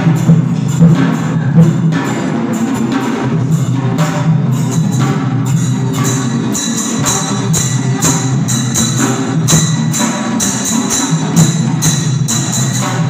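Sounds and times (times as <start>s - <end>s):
jangling metal percussion: 0.0s - 13.0s
large hand drums beating: 0.0s - 13.0s.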